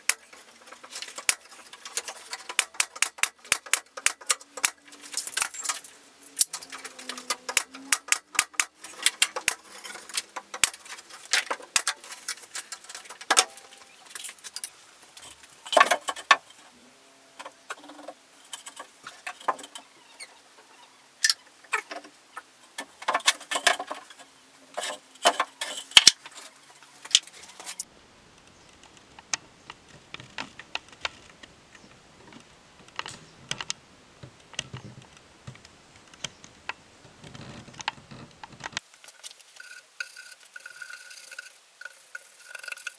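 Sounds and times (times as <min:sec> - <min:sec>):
wooden slats clicking and knocking: 0:00.0 - 0:16.7, 0:17.4 - 0:19.9, 0:21.2 - 0:27.9.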